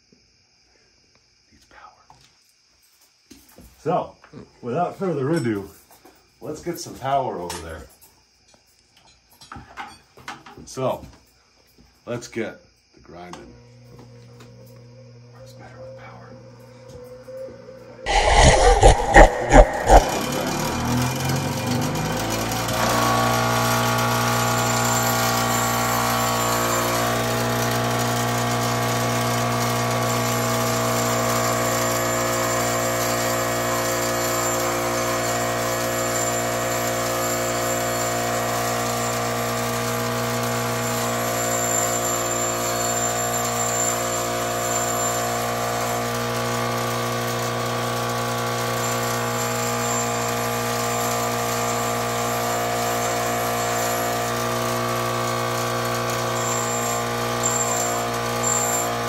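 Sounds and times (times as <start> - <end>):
metal grinding hiss: 18.0 - 20.9
bench grinder motor humming: 18.0 - 59.0.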